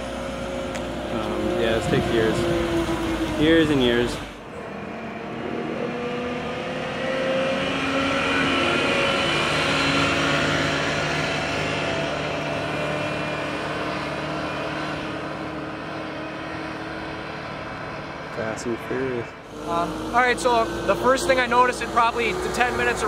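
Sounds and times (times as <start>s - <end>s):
wheel loader diesel engine running: 0.0s - 4.8s, 19.4s - 23.0s.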